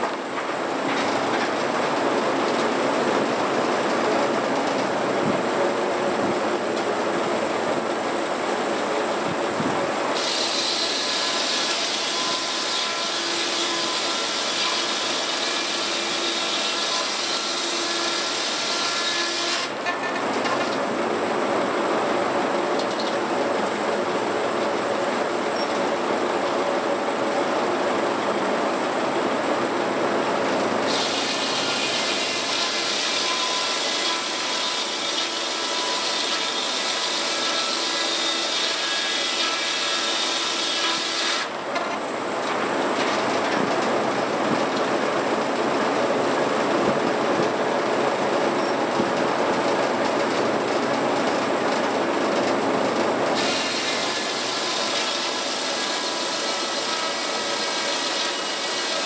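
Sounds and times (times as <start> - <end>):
circular saw cutting a log: 10.1 - 20.0, 30.9 - 41.6, 53.4 - 59.0.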